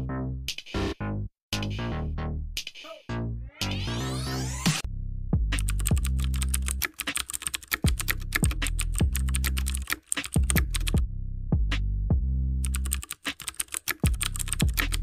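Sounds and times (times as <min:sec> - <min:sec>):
electronic music with deep bass: 0:03.0 - 0:06.8, 0:07.9 - 0:09.8
keyboard typing clicks: 0:05.6 - 0:11.0, 0:12.6 - 0:15.0.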